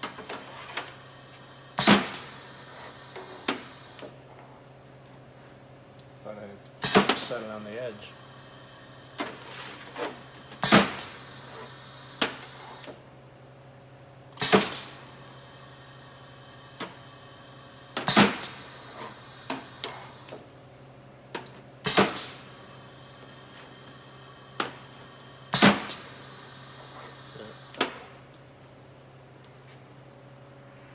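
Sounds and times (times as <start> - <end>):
pneumatic filler air bursts: 0.0 - 4.2, 6.8 - 13.0, 14.4 - 20.5, 21.8 - 28.2.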